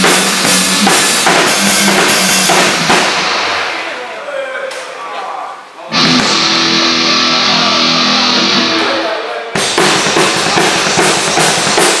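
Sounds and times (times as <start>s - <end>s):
drum and cymbal hits: 0.0s - 4.0s, 6.0s - 8.9s, 9.5s - 12.0s
heavy metal band playing live: 0.0s - 4.0s, 5.9s - 12.0s.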